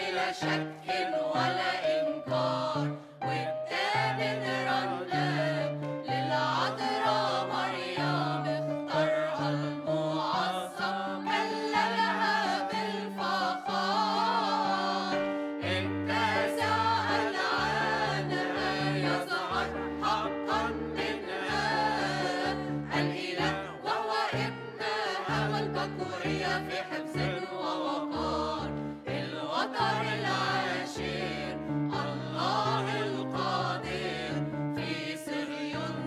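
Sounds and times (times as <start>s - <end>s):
mixed choir singing a hymn: 0.0s - 36.0s.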